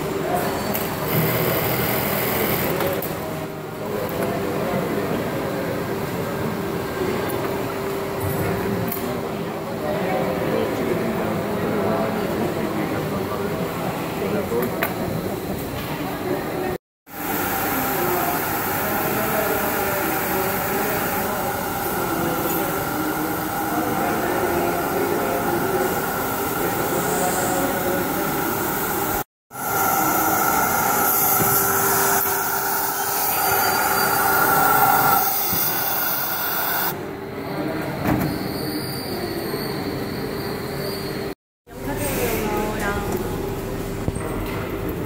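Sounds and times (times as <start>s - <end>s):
factory machinery hum: 0.0s - 38.4s
steam hissing: 17.1s - 36.9s.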